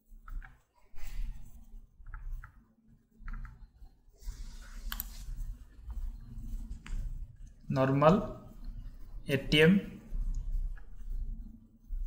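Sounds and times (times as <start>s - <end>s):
low steady hum: 0.0s - 12.0s
computer mouse clicks: 0.2s - 0.6s, 2.0s - 2.6s, 3.2s - 3.9s, 4.8s - 5.9s.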